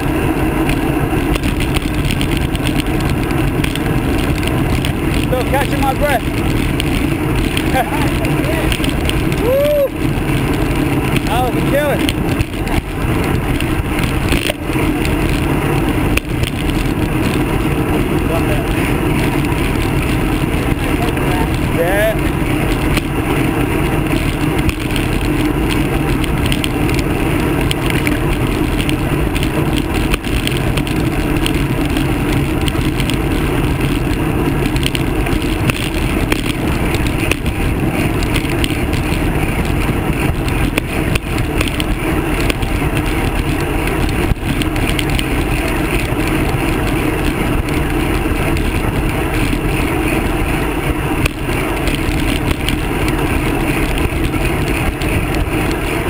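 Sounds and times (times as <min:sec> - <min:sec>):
bike tyre and road noise: 0:00.0 - 0:56.0
wind buffeting microphone: 0:00.0 - 0:56.0.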